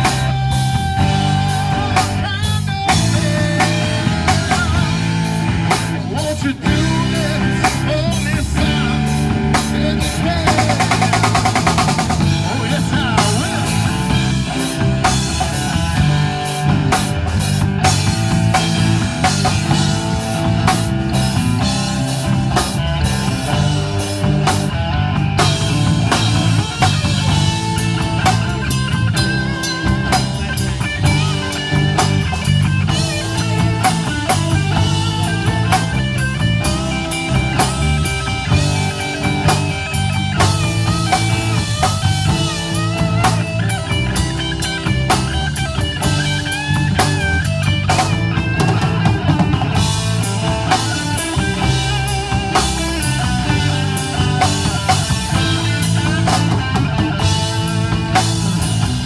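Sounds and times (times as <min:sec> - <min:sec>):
bass guitar: 0:00.0 - 0:59.0
drum kit: 0:00.0 - 0:59.0
electric guitars: 0:00.0 - 0:59.0.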